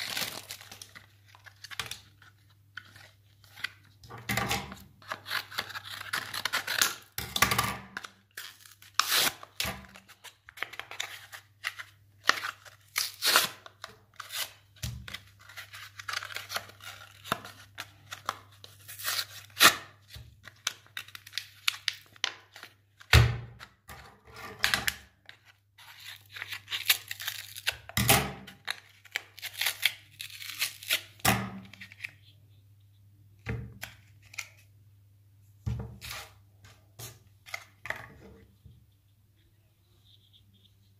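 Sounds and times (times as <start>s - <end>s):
cardboard tearing: 0.0s - 2.0s, 8.4s - 10.0s.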